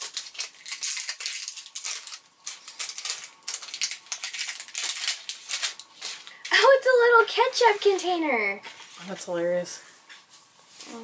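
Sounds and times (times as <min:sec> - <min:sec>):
plastic wrapping crinkling and tearing: 0:00.0 - 0:06.7.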